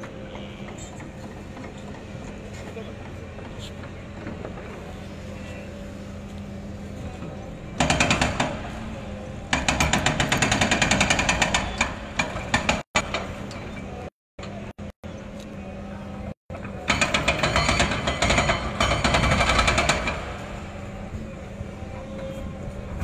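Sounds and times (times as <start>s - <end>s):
low engine hum: 0.0s - 7.8s
demolition hammer blows: 7.7s - 14.9s, 16.5s - 21.5s.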